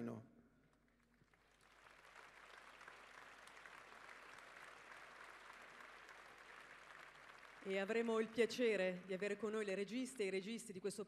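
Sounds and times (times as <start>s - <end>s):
faint crowd applauding: 0.8s - 9.8s.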